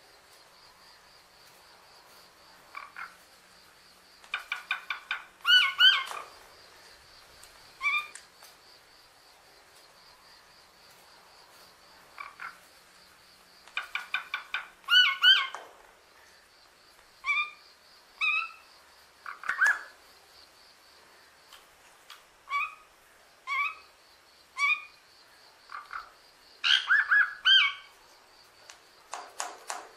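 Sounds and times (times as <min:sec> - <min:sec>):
myna calling and whistling: 0:13.8 - 0:15.6, 0:26.6 - 0:27.9.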